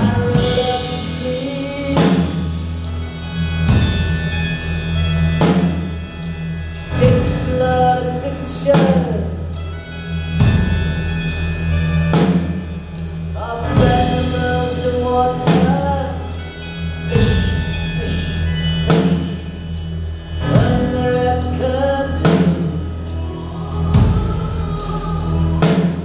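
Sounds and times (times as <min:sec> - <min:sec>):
heavy drum hits: 0:00.0 - 0:02.8
live band playing slow song: 0:00.0 - 0:26.0.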